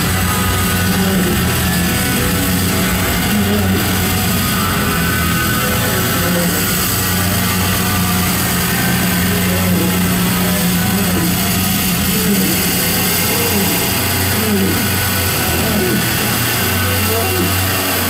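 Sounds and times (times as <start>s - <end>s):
amplified keyboard drone: 0.0s - 18.0s
distorted hiss: 0.0s - 18.0s.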